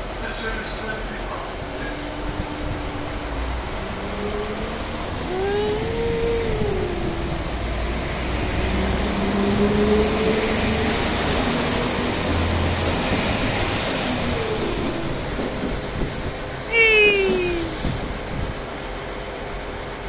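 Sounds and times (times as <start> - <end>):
diesel train engines rumbling: 0.0 - 20.0.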